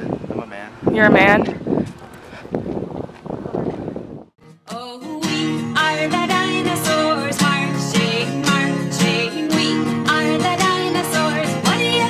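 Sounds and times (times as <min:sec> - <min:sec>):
wind on microphone: 0:00.0 - 0:04.4
song with singing voice: 0:04.4 - 0:12.0.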